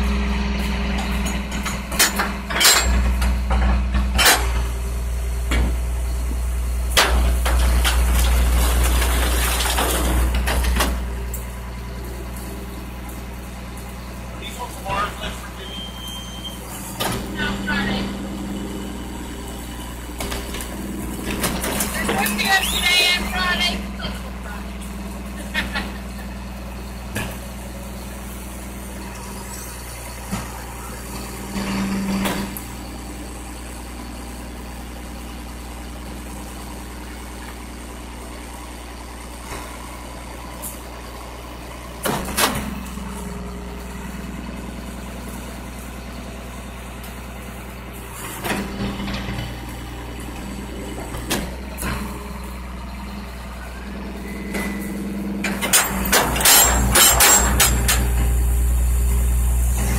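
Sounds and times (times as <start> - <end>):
truck engine running: 0.0 - 59.9
metal dumpster clanks and bangs: 0.8 - 4.8, 54.4 - 58.5.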